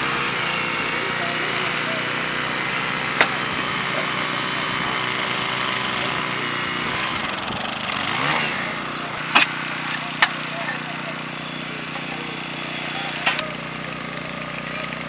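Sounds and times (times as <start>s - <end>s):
small petrol engine running: 0.0s - 15.0s.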